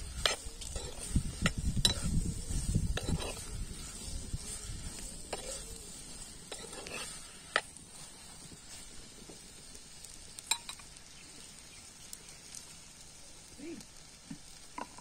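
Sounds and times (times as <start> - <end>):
steel spoon scraping pan: 0.0 - 7.7
vegetables sizzling in oil: 0.0 - 15.0.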